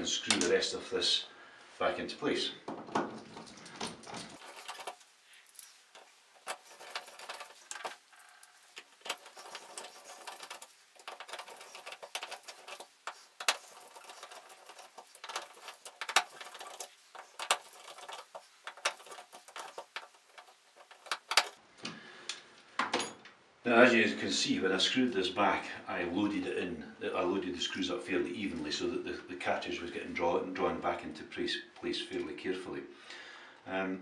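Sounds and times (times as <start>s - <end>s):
screwdriver clicking and scraping: 3.3s - 21.6s.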